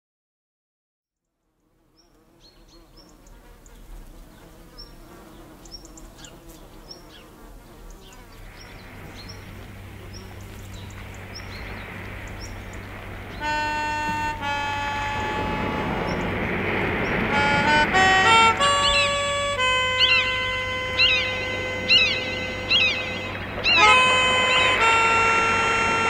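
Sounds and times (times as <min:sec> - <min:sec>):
insects buzzing: 0:01.4 - 0:26.0
loud steady multi-pitched tone: 0:08.8 - 0:26.0
short high bird chirp: 0:18.8 - 0:24.7.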